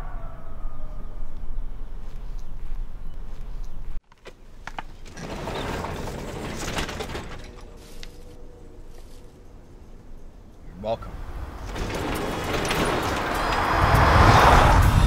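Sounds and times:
garage door rolling along tracks: 4.9 - 8.1, 11.0 - 15.0
sharp clicks on garage door: 5.0 - 7.7, 11.6 - 13.8.

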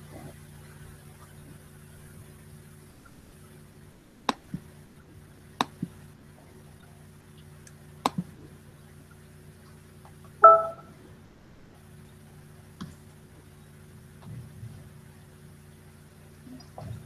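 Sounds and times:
low electrical hum: 0.0 - 17.0
computer double clicks: 10.4 - 10.8
loud pitched blip: 10.4 - 10.9.

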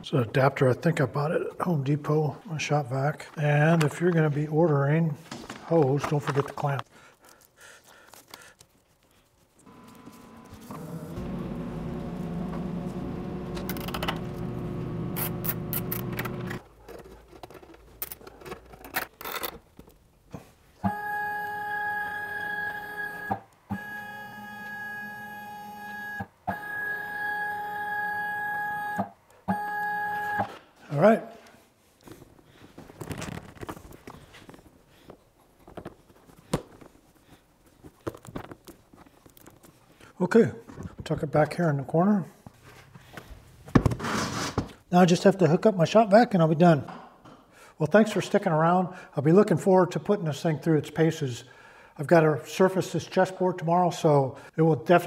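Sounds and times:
steady low hum: 9.7 - 16.6.

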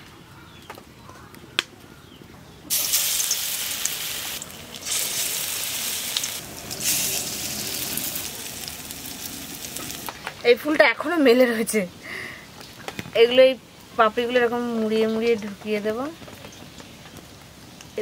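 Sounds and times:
flowers frying in hot oil: 2.7 - 11.4, 14.0 - 18.0.

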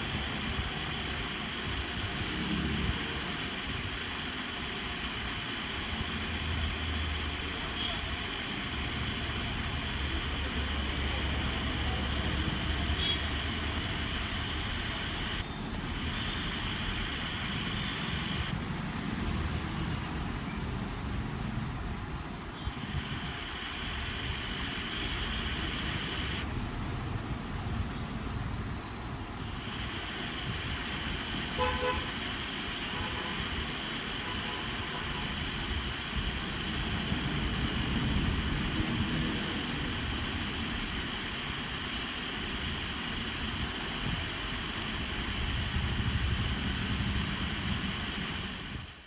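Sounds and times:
road traffic noise: 0.0 - 49.0
vehicle horn toot: 13.0 - 13.3, 31.6 - 32.1.

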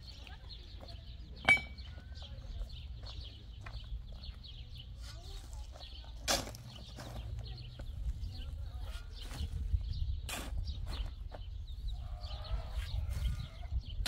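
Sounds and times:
small birds chirping: 0.0 - 14.0
sharp metallic clink: 1.4 - 1.9.

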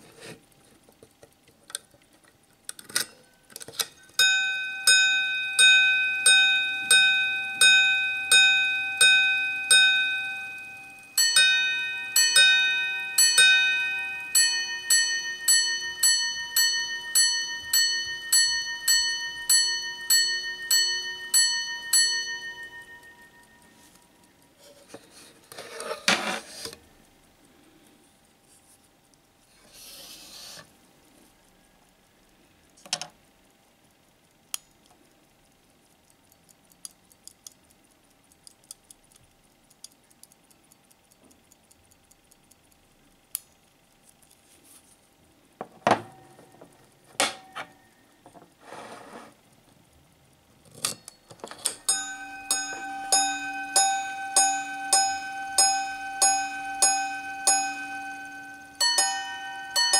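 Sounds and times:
watch gong chiming: 4.2 - 24.2, 51.8 - 59.9.

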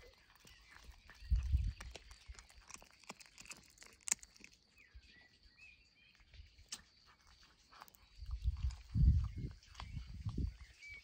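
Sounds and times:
cat chewing raw fish: 0.0 - 4.8.

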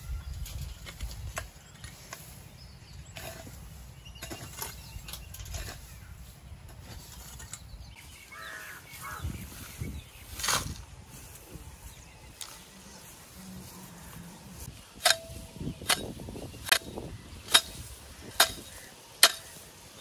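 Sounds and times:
hoes scraping and chopping soil: 0.0 - 20.0
crow cawing: 8.3 - 9.2.

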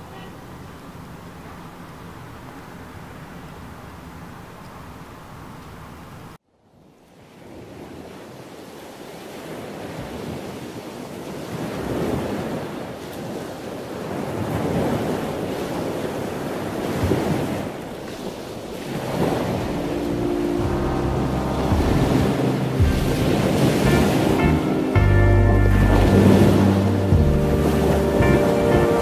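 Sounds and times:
surf on pebble beach: 7.2 - 29.0
music: 20.0 - 29.0.

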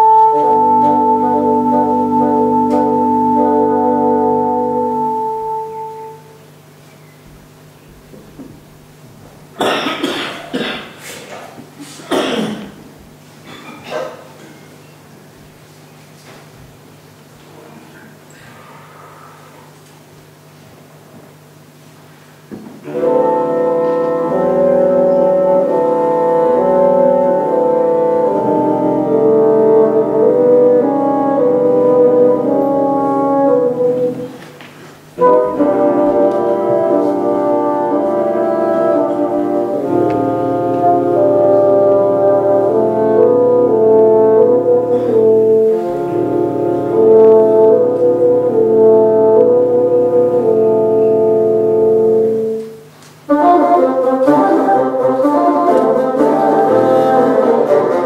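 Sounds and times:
low contrabassoon note: 0.0 - 6.4, 22.8 - 34.4, 35.2 - 58.0
bassoon quartet playing: 0.0 - 6.5, 22.8 - 58.0.

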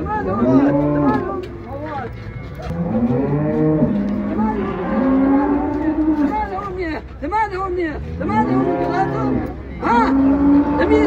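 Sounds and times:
cattle mooing: 0.3 - 1.4, 2.7 - 6.4, 8.2 - 11.0.

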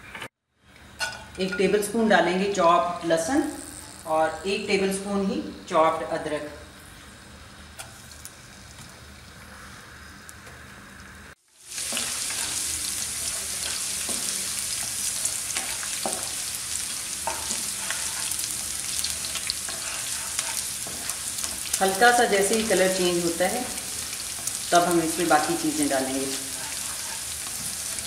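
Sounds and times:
garlic sizzling in hot oil: 6.0 - 28.0
spatula scraping a wok: 11.7 - 28.0.

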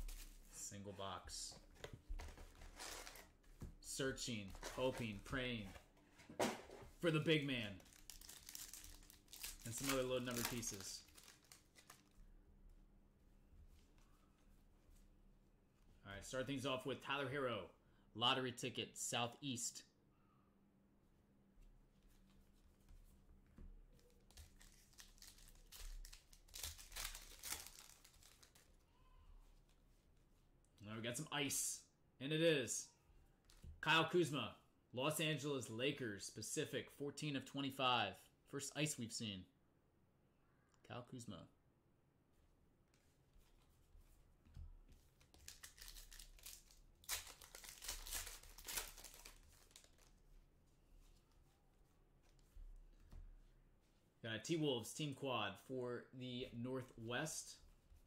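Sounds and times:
foil wrapper crinkling and tearing: 7.8 - 12.1, 24.4 - 28.8, 45.4 - 50.2.

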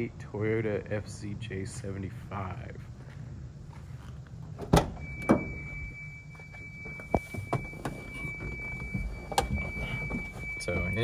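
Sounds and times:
high-pitched warning tone: 5.0 - 11.0.

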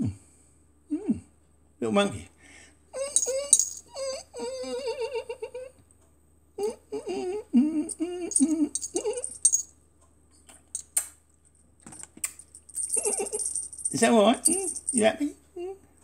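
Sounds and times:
man making silly noises: 6.6 - 9.2.

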